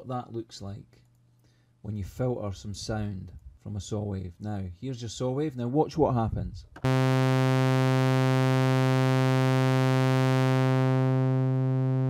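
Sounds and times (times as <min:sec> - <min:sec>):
buzzy sawtooth synth note: 0:06.8 - 0:12.0.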